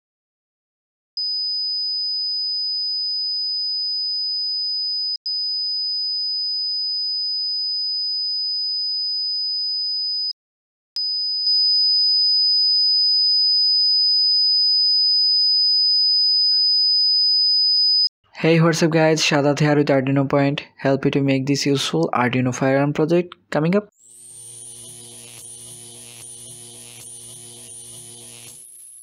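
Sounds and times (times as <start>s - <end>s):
high-pitched buzzer tone: 24.1s - 29.0s.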